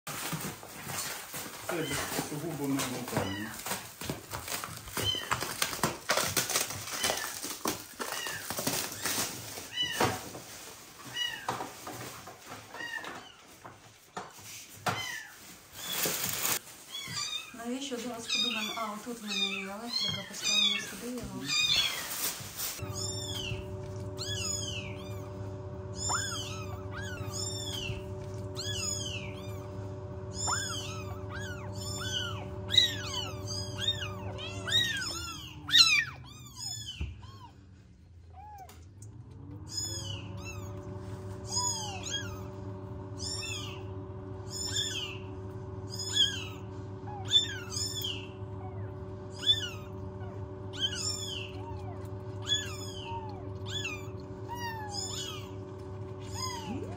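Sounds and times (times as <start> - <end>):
kittens mewing: 14.9 - 22.2, 22.8 - 56.9
steady low hum: 22.8 - 56.9.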